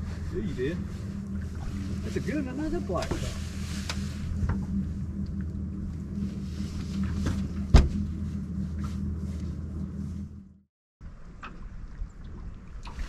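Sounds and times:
electric trolling motor humming: 0.0s - 10.6s
sharp thump: 7.7s - 8.0s.

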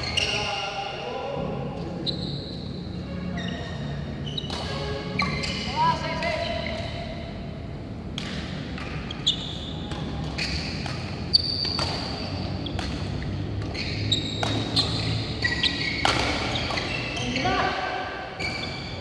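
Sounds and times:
shoe squeaks on court: 0.0s - 0.7s, 1.9s - 2.7s, 3.3s - 7.1s, 9.0s - 17.8s, 18.4s - 19.0s
racket hitting shuttlecock: 4.4s - 5.4s, 8.0s - 17.2s.

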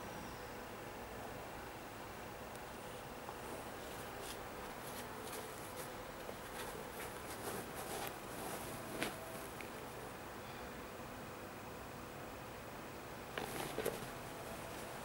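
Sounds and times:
steady background hiss: 0.0s - 15.0s
rustling of sneaker handling: 3.4s - 10.0s, 13.3s - 15.0s.

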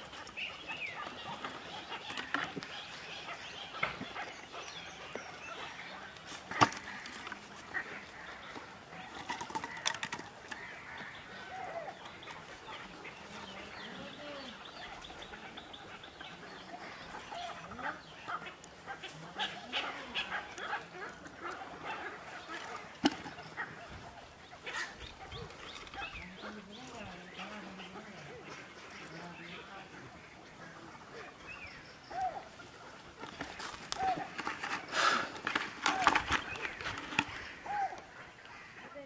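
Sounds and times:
birds chirping: 0.0s - 39.0s
clicks and rustles of handling: 6.1s - 11.2s, 33.1s - 38.6s.

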